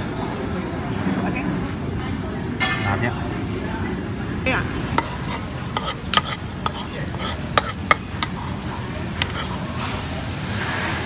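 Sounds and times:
spoons clinking on a bowl: 5.0s - 9.6s.

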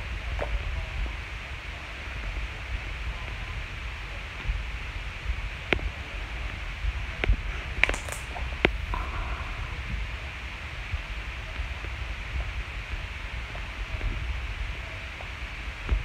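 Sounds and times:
faint hiss with rumble: 0.0s - 16.0s
sharp clicks and pops: 7.2s - 9.0s.

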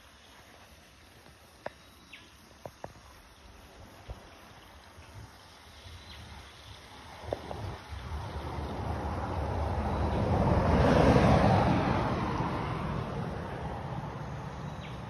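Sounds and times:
road vehicle passing: 6.9s - 15.0s.

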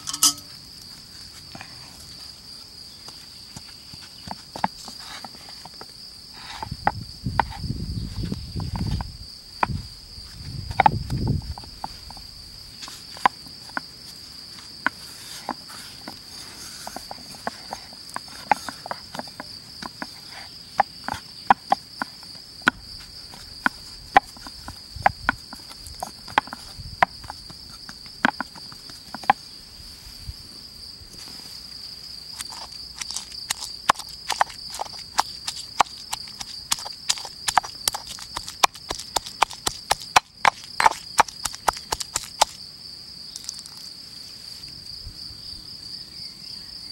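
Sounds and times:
pestle crushing seeds in mortar: 0.0s - 0.5s, 3.1s - 29.4s, 32.3s - 42.6s
crickets chirring: 0.0s - 46.9s
dough clicking in glass bowl: 32.5s - 42.6s.

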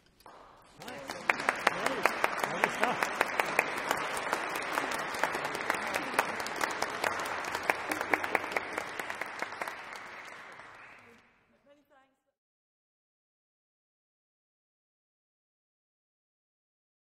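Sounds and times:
audience applauding: 0.2s - 11.3s.

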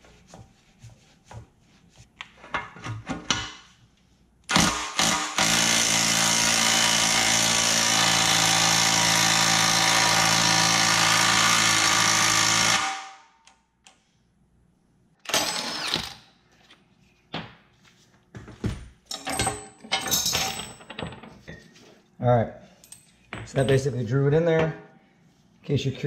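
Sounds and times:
impact wrench hammering: 4.5s - 13.2s
metal tool parts clinking: 19.1s - 21.6s.

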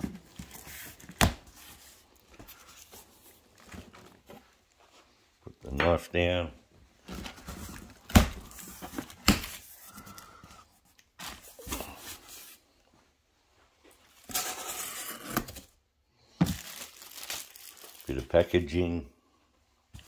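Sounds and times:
plastic packing rustling: 16.4s - 18.6s.

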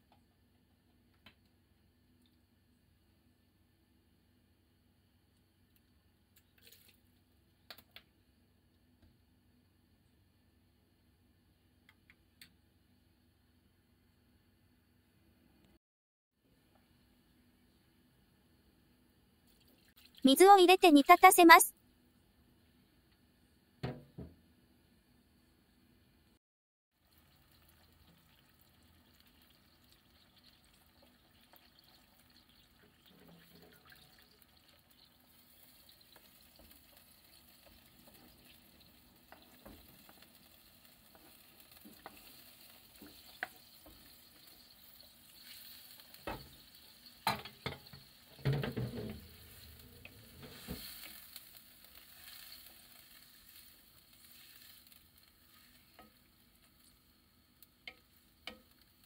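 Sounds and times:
broth simmering in a frying pan: 0.0s - 15.0s, 21.8s - 59.0s
knocks and splashes in a pan: 23.8s - 24.4s, 26.9s - 53.2s.

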